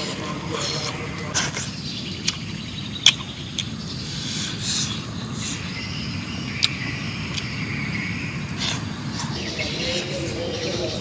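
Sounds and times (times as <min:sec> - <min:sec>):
mouth smacks and clicks: 0:00.6 - 0:05.6, 0:06.6 - 0:07.5.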